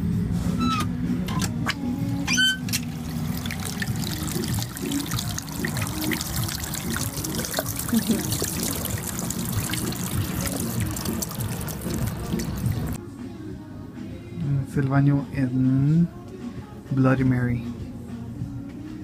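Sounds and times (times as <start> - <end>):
water trickling onto rocks: 2.8 - 13.0.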